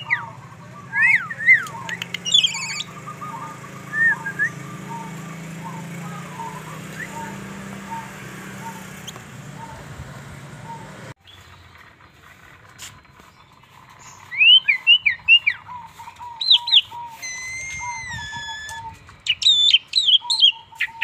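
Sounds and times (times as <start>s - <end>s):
starling chattering: 0.0s - 11.1s
starling whistled phrase: 16.5s - 20.2s.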